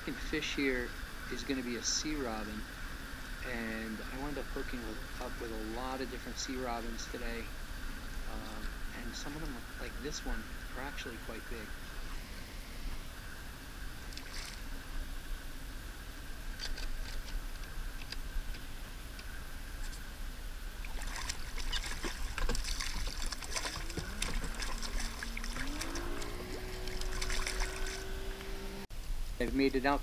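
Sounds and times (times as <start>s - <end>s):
water lapping and splashing: 0.1s - 12.5s, 14.0s - 15.0s, 20.7s - 28.8s
rising hum: 22.3s - 28.9s.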